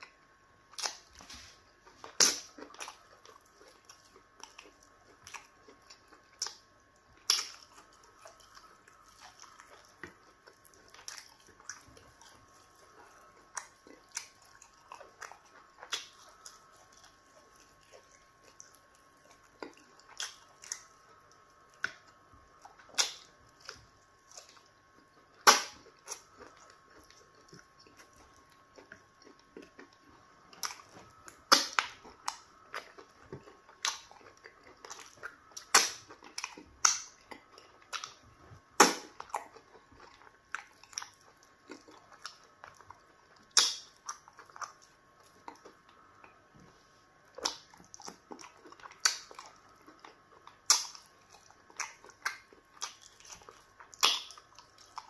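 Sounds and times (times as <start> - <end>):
chewing: 0.0 - 55.0
lip smacks: 33.8 - 38.2, 43.4 - 44.8, 47.4 - 55.0
wet mouth clicks: 43.5 - 44.0.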